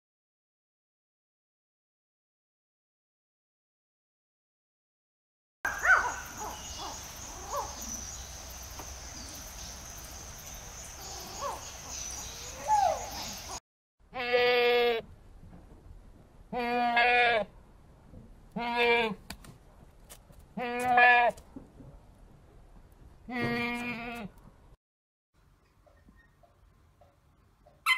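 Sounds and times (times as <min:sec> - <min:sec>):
short chirping calls: 0:05.7 - 0:13.6.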